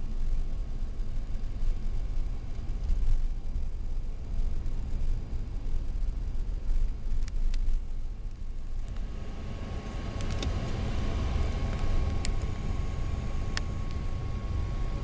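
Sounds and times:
car road and engine rumble: 0.0 - 15.0
faint steady whine: 0.0 - 15.0.

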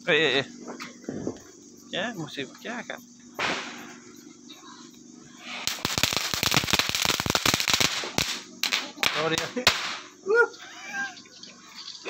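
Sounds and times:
firework cracks: 3.4 - 4.0, 5.6 - 10.1
firework fizzing: 3.4 - 4.0, 5.4 - 10.1
firework crackling hiss: 3.4 - 4.1, 5.3 - 10.2.

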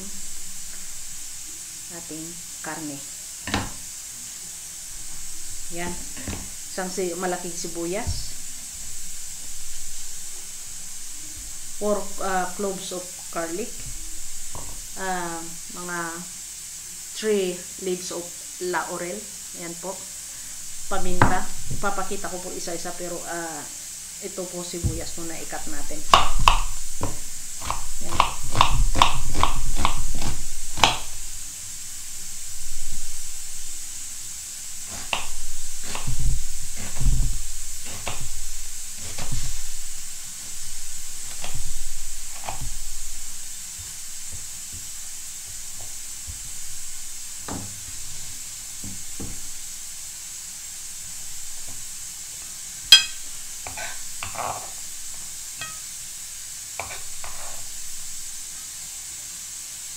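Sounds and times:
knife cutting onion on wooden board: 24.8 - 31.3, 34.8 - 49.6.

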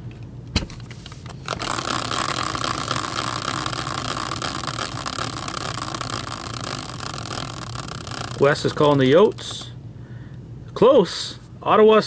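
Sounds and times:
spinning wheel whirring: 1.4 - 9.8
wheel knocking: 1.5 - 9.7.

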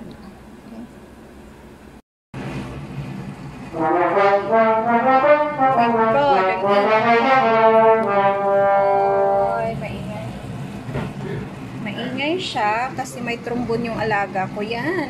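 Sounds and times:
trombone playing: 3.7 - 9.8.

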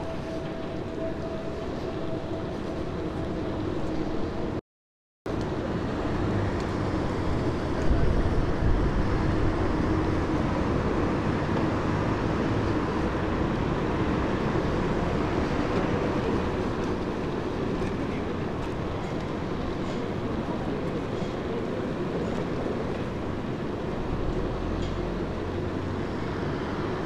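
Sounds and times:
bicycle road rumble: 5.3 - 27.0
wind buffeting microphone: 6.7 - 10.8.

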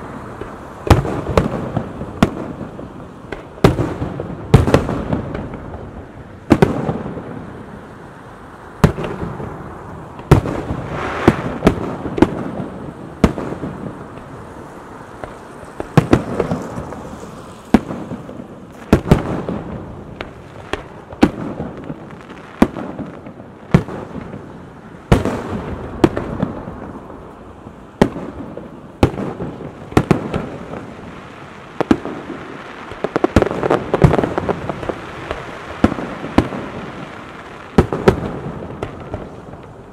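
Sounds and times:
firework shells bursting: 10.2 - 12.6.

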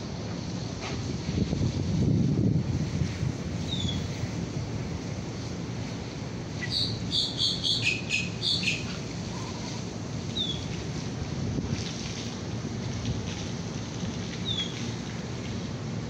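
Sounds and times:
bird chirping: 6.6 - 9.6.

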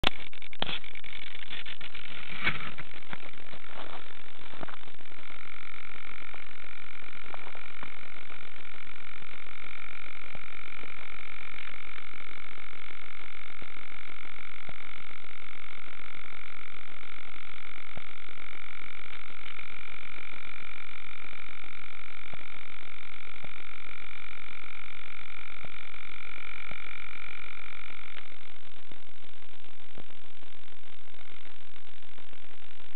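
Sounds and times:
electronic whine of held tones: 0.0 - 32.9.

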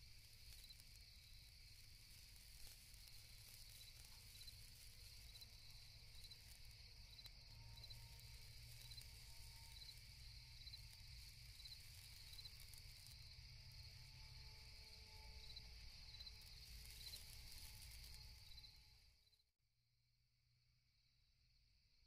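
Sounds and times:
crickets trilling: 0.0 - 19.3.

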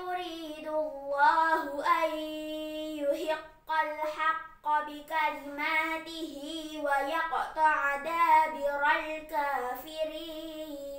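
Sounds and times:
girl reciting melodically: 0.0 - 10.9.

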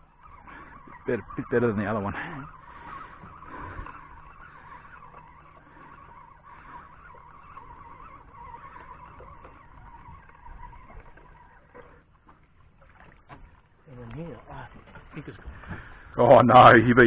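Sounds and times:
fishing reel whirring: 2.5 - 12.1.

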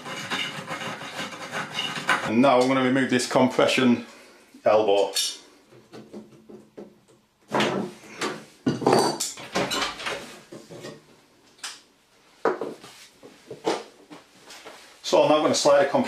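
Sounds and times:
tools set down on wooden floor: 7.5 - 11.0.

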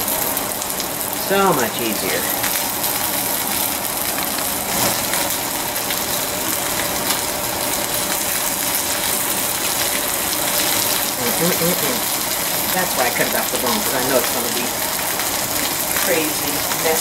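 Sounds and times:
chicken sizzling in a grill pan: 0.0 - 17.0.

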